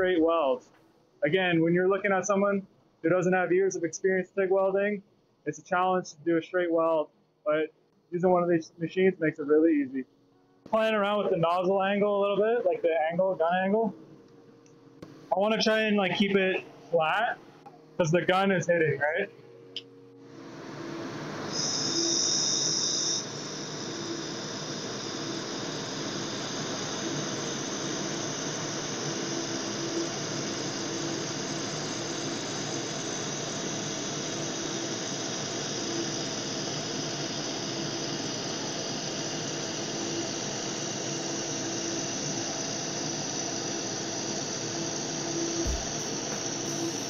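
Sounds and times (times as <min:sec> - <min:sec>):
laser welder hissing: 0:20.4 - 0:47.0.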